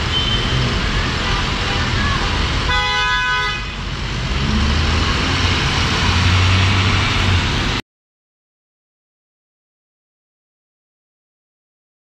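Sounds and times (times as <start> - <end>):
vehicle horn: 0.0 - 0.6, 2.7 - 3.8
engines rumbling: 0.0 - 7.8.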